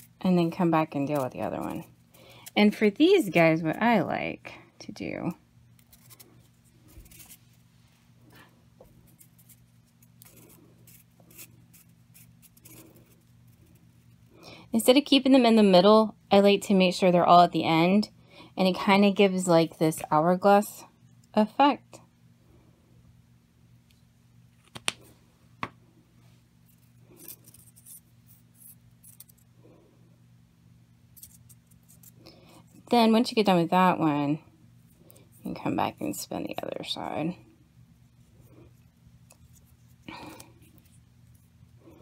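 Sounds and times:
steady low hum: 0.0s - 42.0s
paper rustling and scratching: 5.8s - 7.6s, 9.0s - 14.2s, 26.6s - 29.4s.

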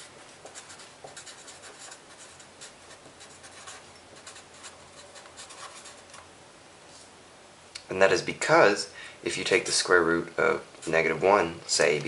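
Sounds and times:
marker scratching on paper: 0.0s - 6.2s.

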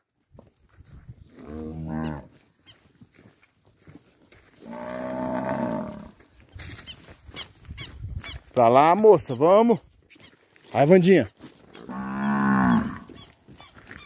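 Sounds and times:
cattle mooing: 1.4s - 2.3s, 4.6s - 6.2s, 11.8s - 13.2s.

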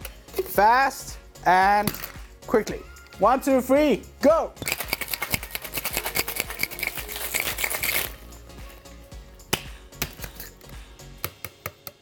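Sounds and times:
background music: 0.0s - 12.0s
ice rattling in cocktail shaker: 4.6s - 8.3s.

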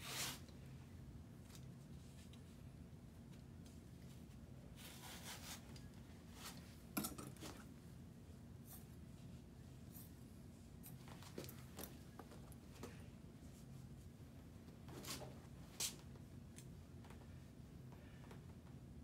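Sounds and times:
tape being peeled and smoothed: 0.0s - 0.5s, 3.6s - 6.8s.

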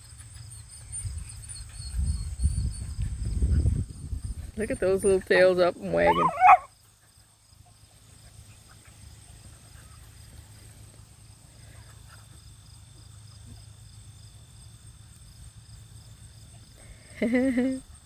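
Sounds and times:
puppies squeaking: 0.9s - 3.1s, 4.8s - 6.7s.

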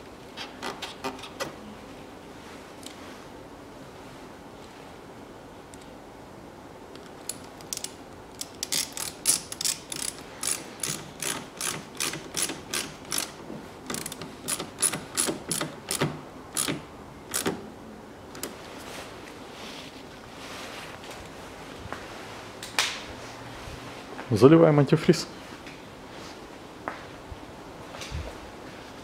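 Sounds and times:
screwdriver ratcheting clicks: 7.0s - 17.6s.

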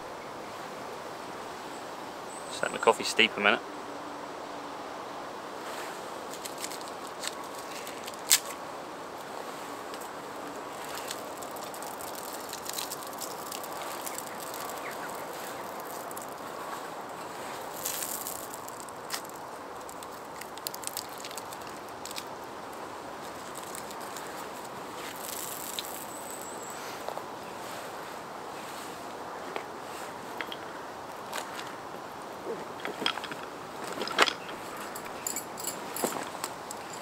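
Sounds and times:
hissing rustles: 5.6s - 37.0s
wood crackling and popping: 6.3s - 8.6s, 9.2s - 26.6s.

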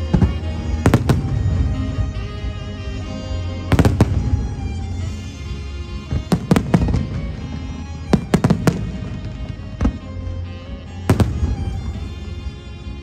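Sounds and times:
fireworks bursting: 0.0s - 10.3s, 10.9s - 12.6s
music playing: 0.0s - 13.0s.

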